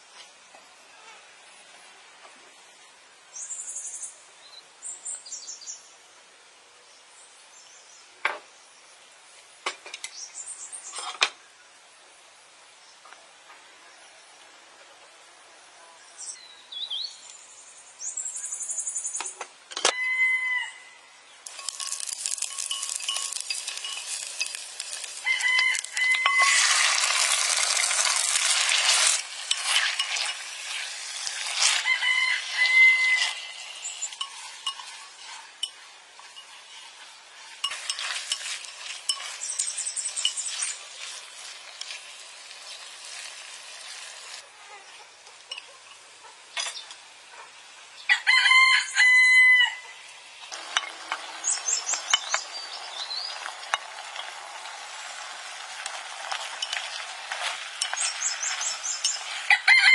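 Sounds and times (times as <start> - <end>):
rooster crowing: 19.9 - 21.0, 25.2 - 26.8, 31.7 - 33.6, 48.1 - 50.0, 59.5 - 59.9
wet mixing and scraping in a pot: 21.4 - 44.4, 50.4 - 59.9.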